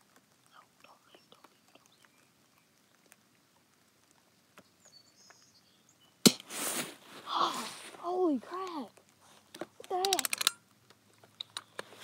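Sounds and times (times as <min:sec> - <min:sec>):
handling clicks and rustles: 0:07.8 - 0:12.0.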